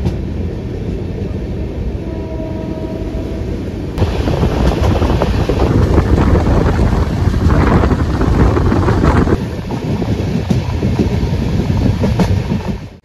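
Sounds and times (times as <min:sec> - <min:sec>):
train wheels rumbling on track: 0:00.0 - 0:13.0
wind buffeting microphone: 0:03.2 - 0:13.0.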